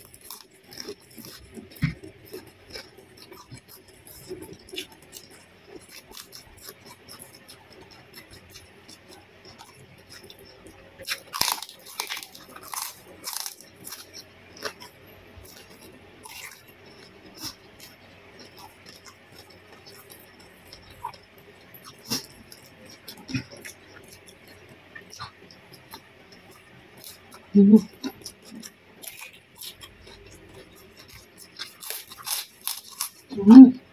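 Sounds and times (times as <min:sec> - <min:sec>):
person chewing: 0:00.0 - 0:33.8
crisp crunching bites: 0:11.1 - 0:14.8, 0:31.0 - 0:33.2.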